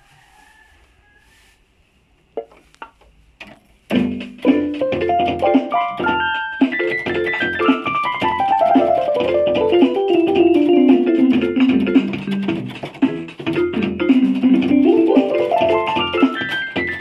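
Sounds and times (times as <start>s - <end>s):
keyboard bass accompaniment: 3.9s - 17.0s
keyboard drum rhythm: 3.9s - 17.0s
piano-like keyboard melody: 3.9s - 17.0s.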